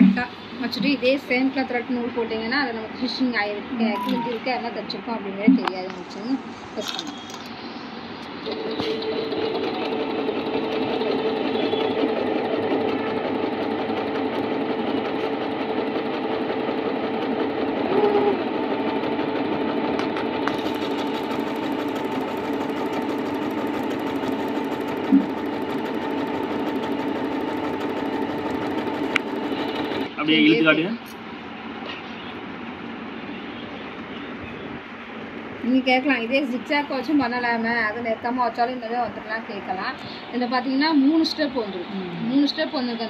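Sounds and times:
sewing machine running: 0:08.4 - 0:30.4.

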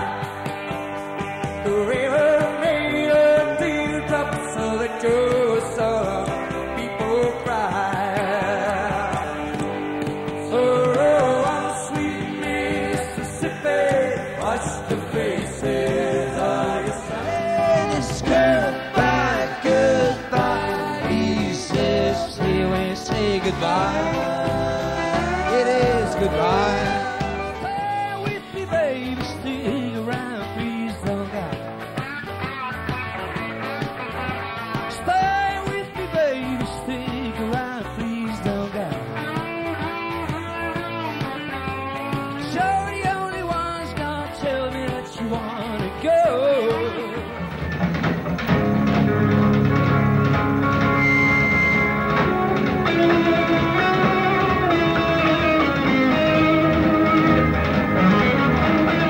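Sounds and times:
live rock band: 0:00.0 - 0:59.0.

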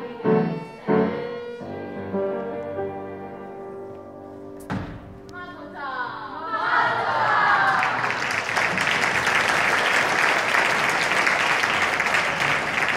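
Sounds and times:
audience applauding: 0:06.9 - 0:12.9.

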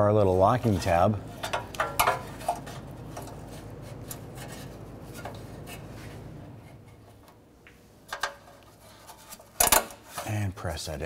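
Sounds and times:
low hum: 0:00.0 - 0:08.6
gloved hands rubbing on metal: 0:00.6 - 0:07.0.

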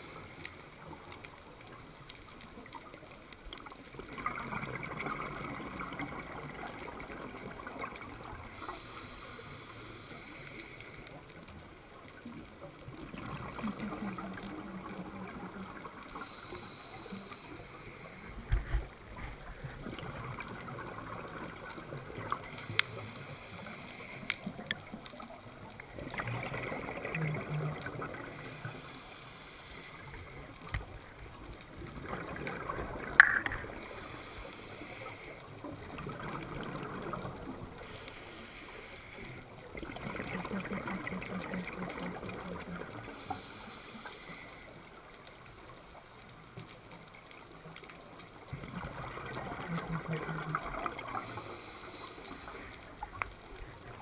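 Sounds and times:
scuba regulator inhale hiss: 0:08.5 - 0:11.2, 0:16.2 - 0:18.5, 0:22.4 - 0:24.6, 0:28.3 - 0:30.5, 0:33.6 - 0:35.5, 0:37.7 - 0:39.5, 0:43.0 - 0:44.9, 0:51.1 - 0:53.0
bubbling exhale underwater: 0:25.9 - 0:28.6, 0:31.8 - 0:34.1, 0:39.8 - 0:43.5, 0:48.5 - 0:51.8.

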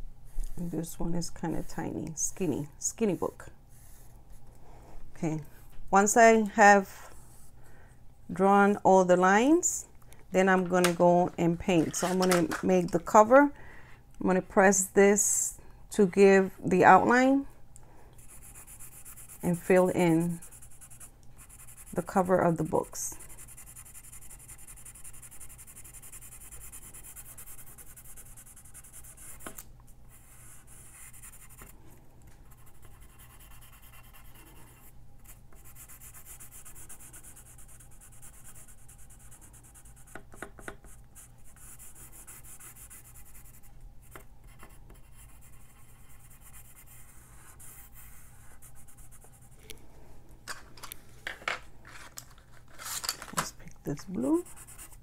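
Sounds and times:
pencil scratching on paper: 0:18.2 - 0:31.7, 0:32.5 - 0:49.6, 0:54.2 - 0:55.0.

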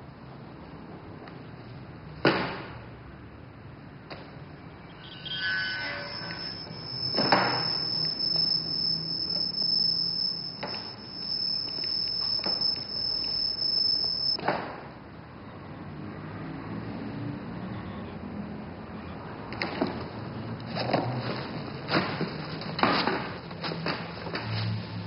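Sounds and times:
steady high-pitched whine: 0:04.8 - 0:14.4.

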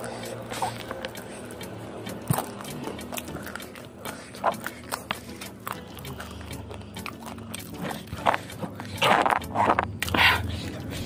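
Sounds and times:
chewing and lip-smacking: 0:00.0 - 0:11.0.

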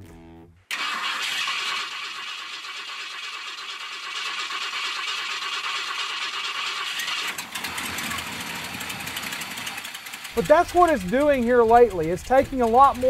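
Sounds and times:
engine cranking by starter: 0:00.7 - 0:13.0.

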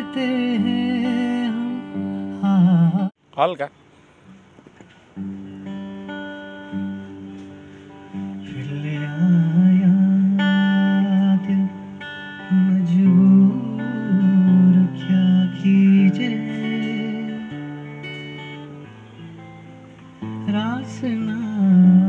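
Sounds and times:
acoustic guitar chords: 0:00.0 - 0:03.2, 0:04.2 - 0:22.0
man singing: 0:00.0 - 0:03.2, 0:08.3 - 0:17.9, 0:20.3 - 0:22.0.

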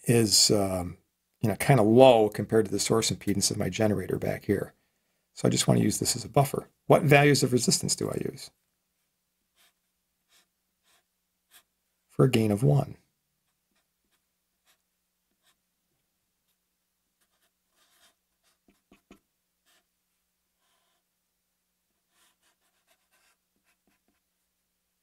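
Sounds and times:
marker drawing on paper: 0:09.5 - 0:11.8, 0:13.4 - 0:15.6, 0:16.4 - 0:16.6, 0:17.2 - 0:19.9, 0:20.6 - 0:21.1, 0:22.0 - 0:24.3.

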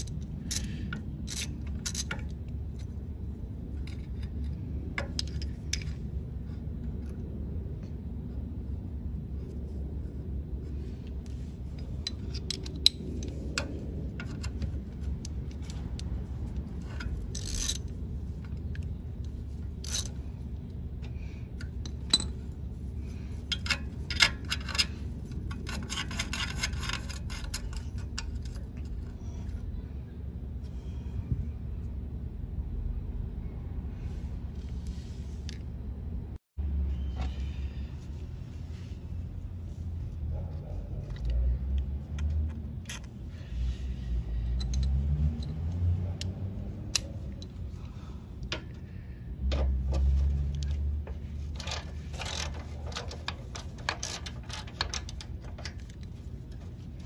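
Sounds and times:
socket wrench clicking on metal: 0:00.0 - 0:02.9, 0:11.8 - 0:20.2, 0:44.5 - 0:47.6, 0:50.5 - 0:56.2
steady low hum: 0:00.0 - 0:57.0.

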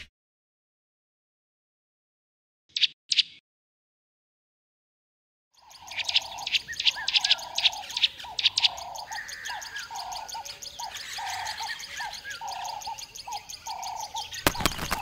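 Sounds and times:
birds high chirps: 0:02.7 - 0:03.4, 0:05.6 - 0:15.0.

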